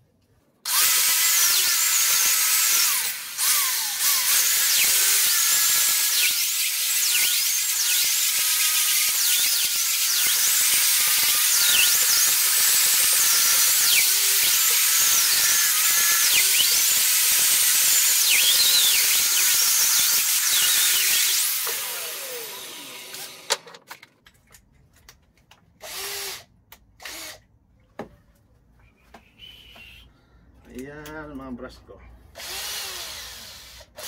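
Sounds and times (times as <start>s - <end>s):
grinder winding down whine: 6.0s - 23.6s.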